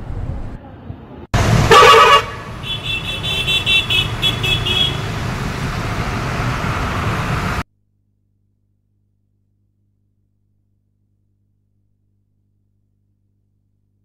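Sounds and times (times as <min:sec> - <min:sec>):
road traffic noise: 0:00.0 - 0:07.6.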